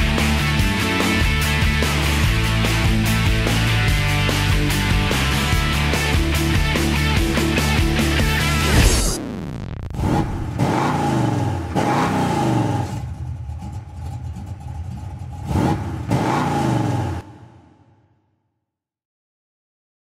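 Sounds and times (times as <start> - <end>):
motocross engine revving: 9.9 - 17.3.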